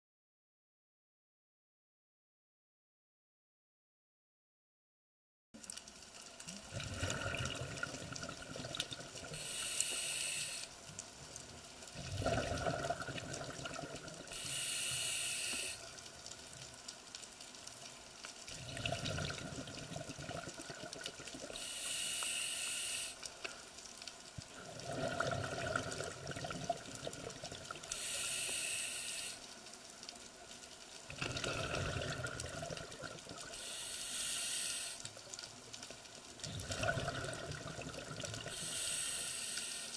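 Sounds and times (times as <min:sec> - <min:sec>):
exhaled bubbles rushing: 0:06.7 - 0:09.3, 0:12.0 - 0:14.3, 0:18.5 - 0:21.4, 0:24.6 - 0:27.8, 0:31.1 - 0:33.5, 0:36.5 - 0:38.5
diver breathing through regulator: 0:09.3 - 0:10.7, 0:14.3 - 0:15.9, 0:21.5 - 0:23.3, 0:27.9 - 0:29.4, 0:33.5 - 0:35.1, 0:38.5 - 0:39.9.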